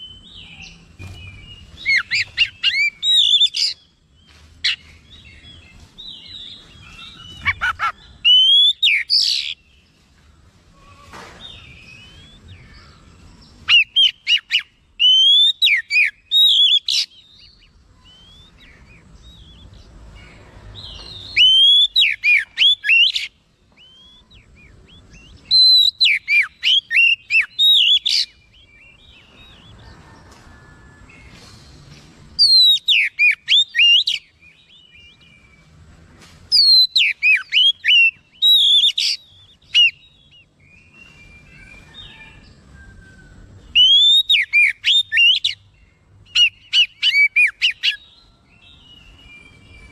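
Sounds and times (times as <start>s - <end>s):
bird singing whistled phrases: 0.0s - 3.8s, 11.5s - 12.6s, 13.7s - 19.7s, 20.9s - 29.5s, 32.4s - 35.4s, 36.6s - 42.3s, 43.7s - 45.6s.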